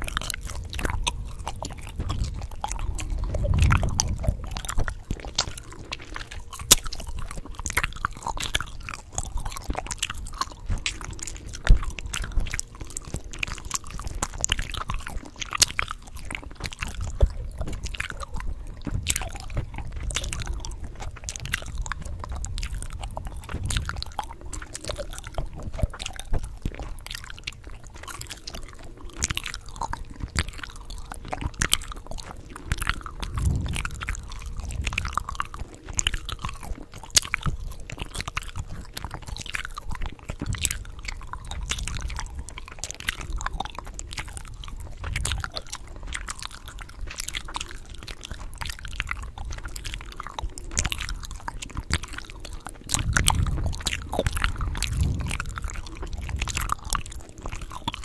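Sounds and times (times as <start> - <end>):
gum chewing: 0.0 - 58.0
gum popping: 0.0 - 58.0.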